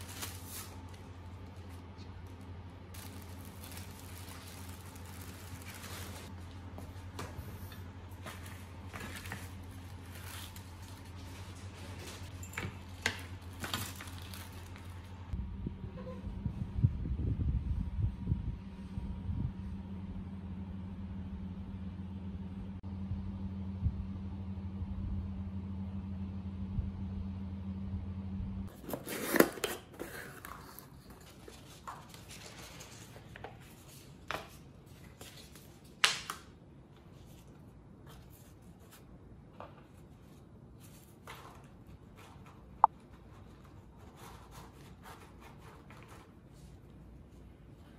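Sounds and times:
steady low hum: 0.0 - 28.8.

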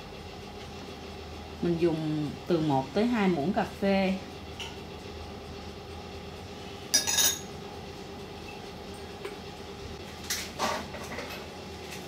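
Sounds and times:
metal spoon clinking on ceramic bowl: 6.9 - 7.5.

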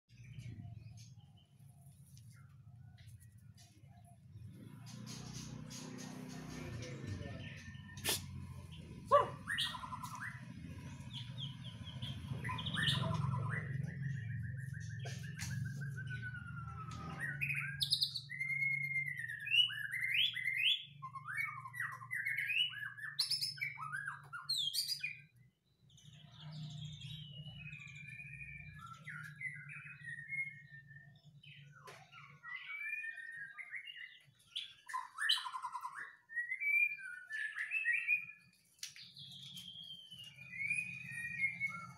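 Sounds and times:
bird singing whistled trills: 9.1 - 41.9.

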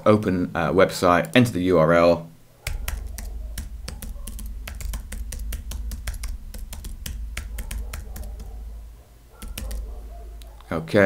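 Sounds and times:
keyboard typing: 2.6 - 10.7
low hum: 2.6 - 10.7.

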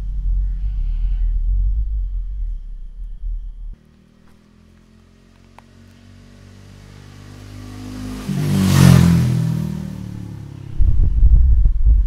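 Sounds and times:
motorcycle passing by: 3.7 - 11.6.

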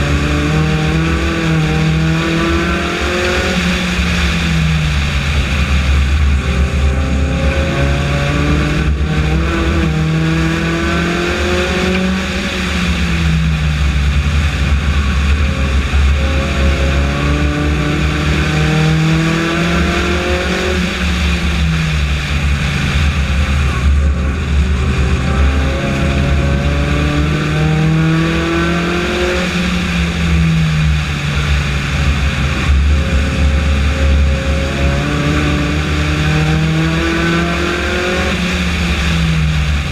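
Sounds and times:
race car engine revving: 0.0 - 39.9
steady low rumble: 0.0 - 39.9.

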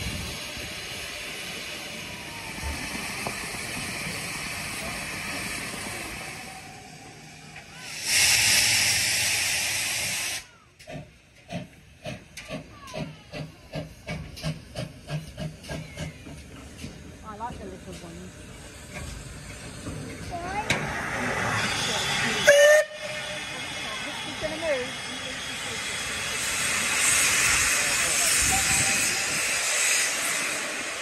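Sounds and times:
loud blast of steam: 0.0 - 10.7, 20.5 - 31.0
steam locomotive hissing: 0.0 - 31.0.

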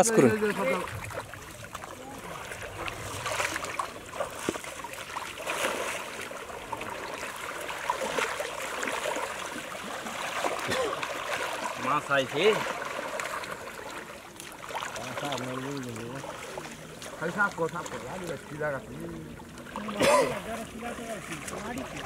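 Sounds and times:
water sloshing and splashing: 0.0 - 22.0.

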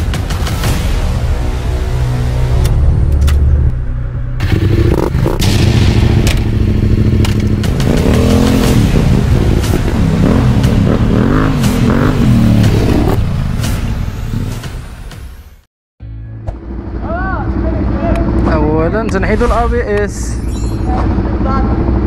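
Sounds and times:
motorcycle engine revving: 4.3 - 13.4
sharp clicks and knocks: 7.2 - 7.8.

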